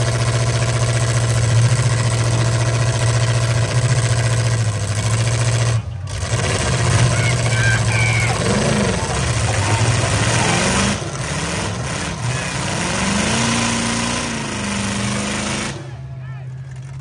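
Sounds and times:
wheels spinning in dirt: 0.0 - 13.2
truck engines revving: 0.0 - 17.0.

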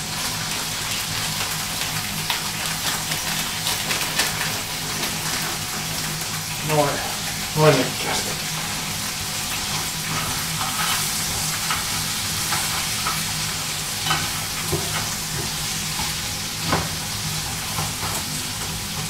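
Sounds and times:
vegetables sizzling in oil: 0.0 - 19.0
spatula scraping against pan: 10.1 - 13.2.

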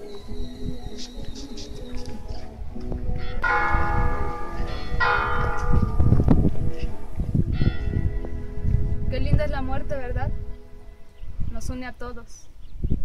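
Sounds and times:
church bell tolling: 3.2 - 9.1
low rumble: 3.6 - 11.6.

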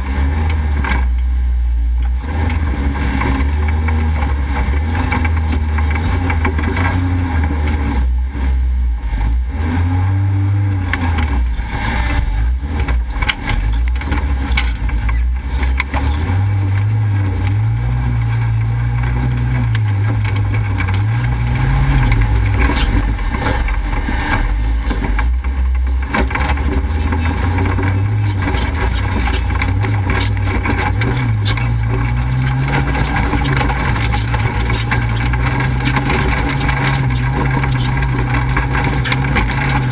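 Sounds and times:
off-road engine revving: 0.0 - 39.9
knocks and rattles: 10.9 - 39.9.

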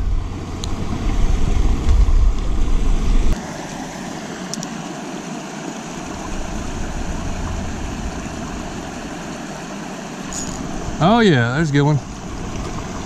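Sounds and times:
low microphone rumble: 0.0 - 3.4, 6.1 - 9.3
water rushing over dam: 3.3 - 13.0.

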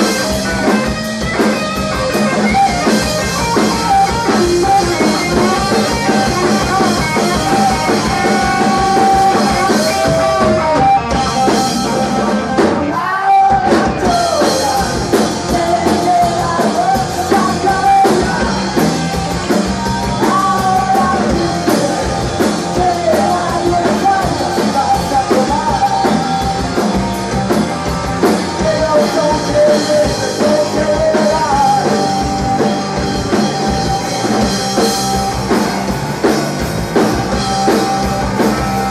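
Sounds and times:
drum kit: 0.0 - 38.9
electric bass: 0.0 - 38.9
electric guitar: 0.0 - 38.9.

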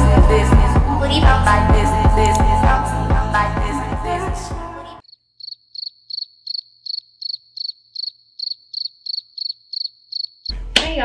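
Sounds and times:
cricket chirping: 5.0 - 10.5.

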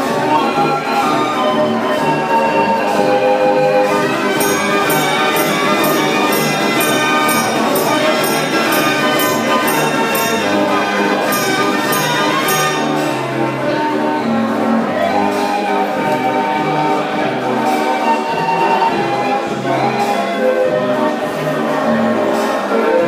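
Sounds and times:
street organ pipe tones: 0.0 - 23.0
percussion strikes: 3.8 - 13.7.

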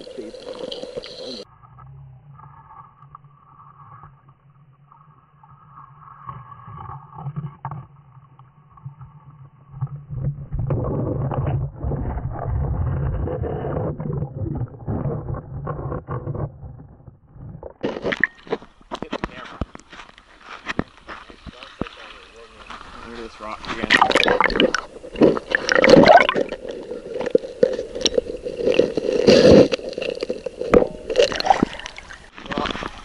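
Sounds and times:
churning water and bubbles: 0.0 - 1.4, 6.5 - 18.8, 21.3 - 33.0
muffled underwater water rumble: 0.0 - 18.3.

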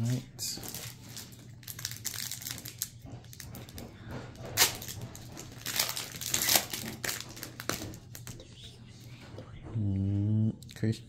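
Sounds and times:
card pack wrapper crinkling: 0.5 - 3.4, 4.6 - 8.4.

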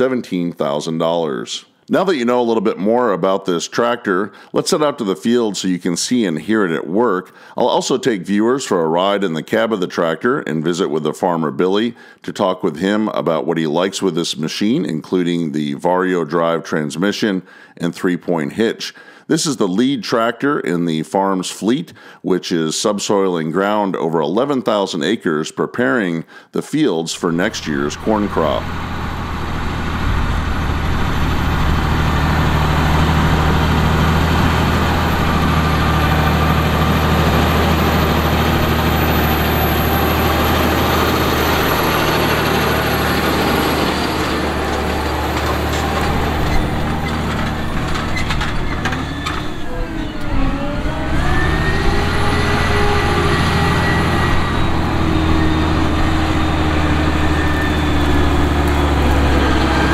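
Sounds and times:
tractor diesel engine under load: 27.2 - 59.9.

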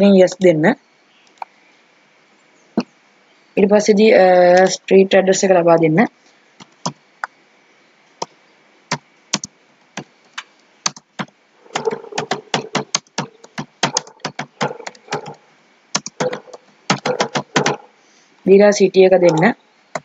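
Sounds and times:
keyboard typing: 10.9 - 17.9.

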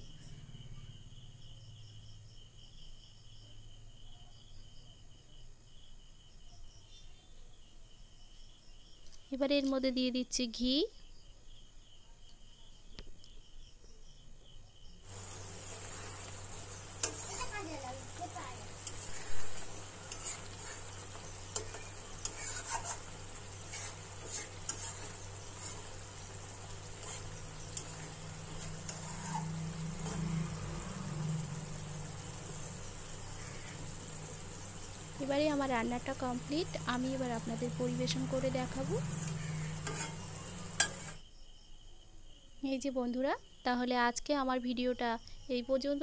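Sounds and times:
crickets chirping: 0.0 - 46.0
faint sizzle: 14.9 - 41.3
spatula scraping and tapping pan: 15.3 - 30.5, 38.2 - 41.2
low hum: 22.8 - 41.1.

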